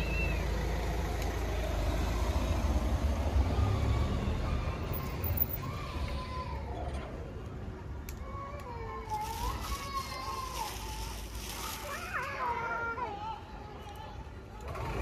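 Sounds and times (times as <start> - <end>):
passing road traffic rumble: 0.0 - 12.0.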